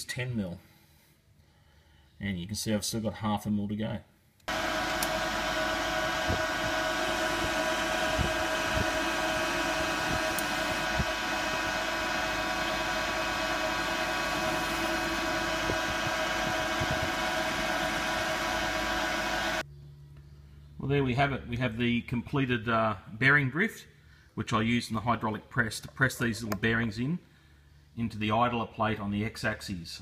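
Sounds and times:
metal lathe whine: 4.5 - 19.6.

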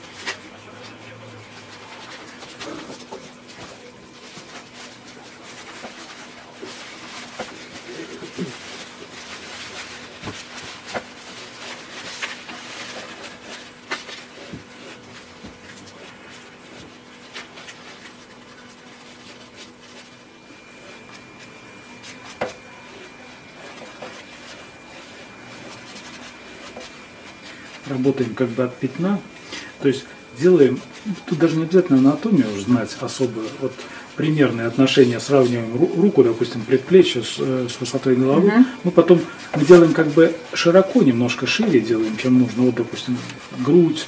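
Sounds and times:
brush rubbing on canvas: 0.0 - 44.0.

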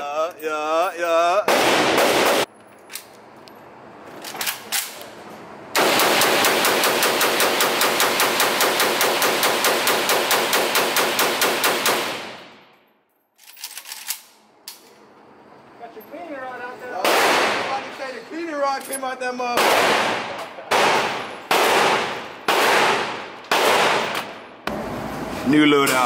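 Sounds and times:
wavering voice: 0.0 - 1.5
automatic rifle fire: 1.5 - 2.5, 5.8 - 12.6, 17.0 - 17.7, 19.6 - 24.4.

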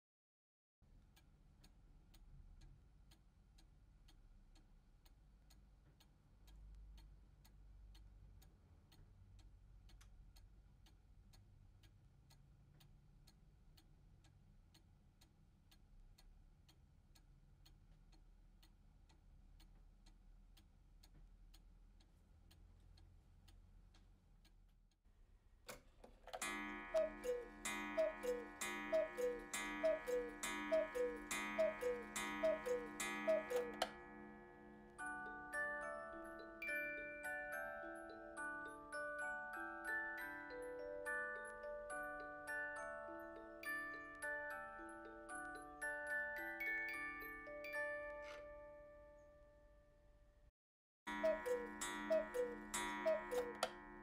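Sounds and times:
clock ticking: 1.7 - 24.6, 26.3 - 38.7, 51.1 - 54.0
clock movement clicks: 25.7 - 35.5, 51.1 - 54.0
cuckoo clock calling: 26.4 - 49.2, 51.1 - 54.0.

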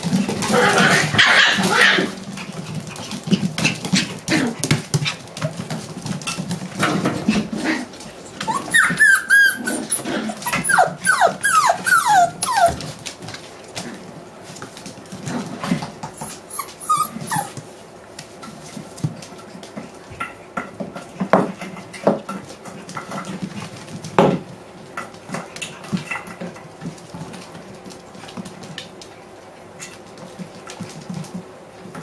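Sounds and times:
puppies growling: 0.0 - 14.2, 15.1 - 17.7
puppies yelping: 0.5 - 2.2, 8.2 - 13.0, 16.2 - 17.6.

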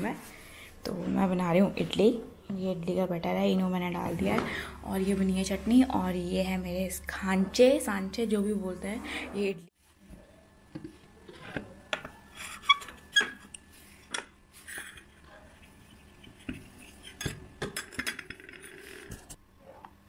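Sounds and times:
brush rubbing oil on plate: 13.7 - 17.2.

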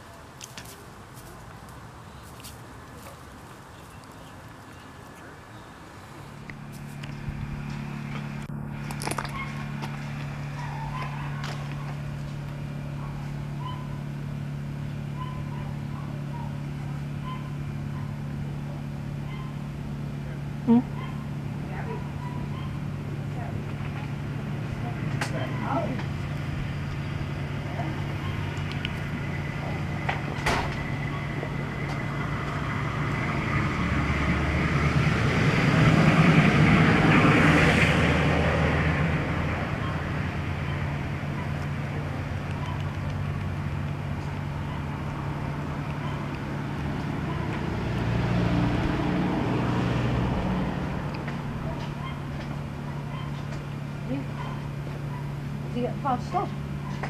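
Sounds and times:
low mechanical hum: 0.0 - 34.6
vehicle engine passing: 0.7 - 57.0.

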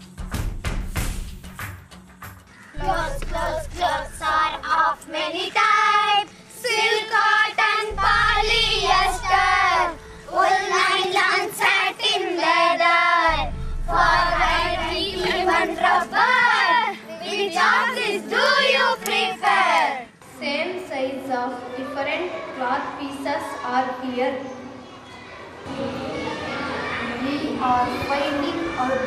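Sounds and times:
children singing: 2.8 - 20.1.

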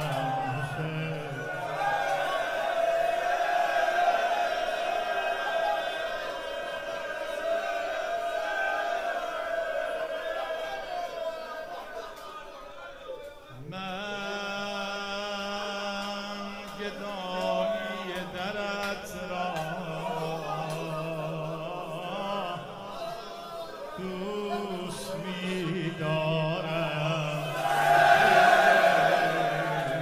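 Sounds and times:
man chanting lament: 0.0 - 2.2, 9.8 - 30.0.

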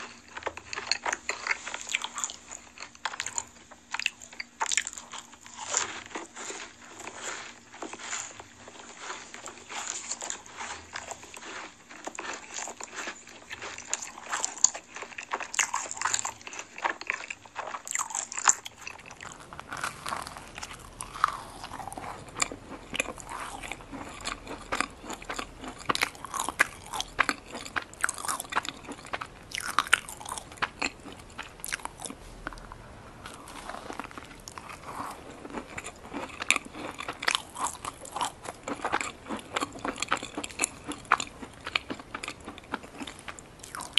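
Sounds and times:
chewing: 0.0 - 43.9
crisp shells crunching: 0.0 - 43.9.

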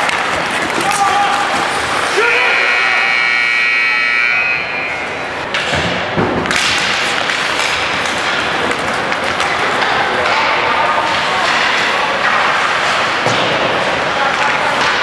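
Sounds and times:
pucks and sticks knocking boards: 0.0 - 2.3, 5.4 - 15.0.

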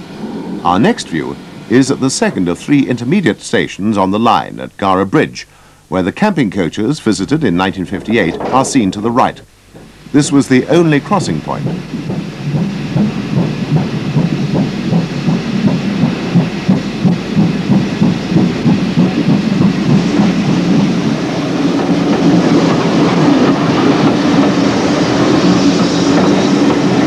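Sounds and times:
train rumbling along track: 0.0 - 5.1, 6.0 - 27.0
steam locomotive exhaust beats: 0.0 - 27.0.

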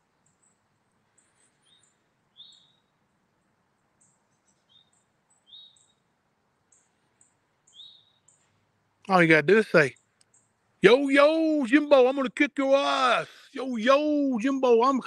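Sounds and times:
thin high bird chirps: 0.2 - 8.7.

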